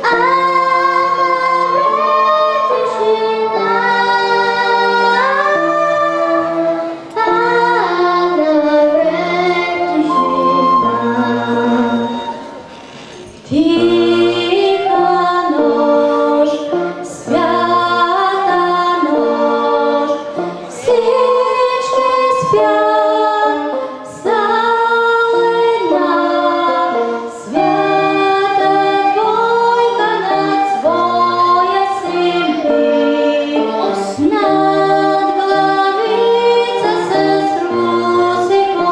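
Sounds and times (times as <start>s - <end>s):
woman singing: 0.0s - 12.4s, 13.4s - 38.9s
girl singing: 0.0s - 12.6s, 13.4s - 38.9s
low accompaniment notes: 0.0s - 12.8s.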